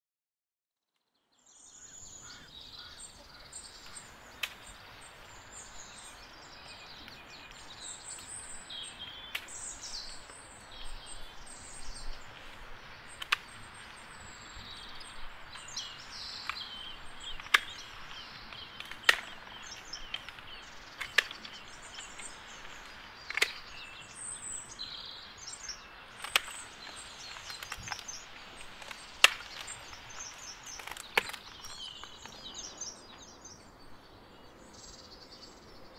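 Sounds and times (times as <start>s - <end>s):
birds singing and chirping: 1.4s - 35.9s
pruning shears snipping stems: 3.9s - 5.3s, 16.0s - 23.9s, 26.1s - 32.3s.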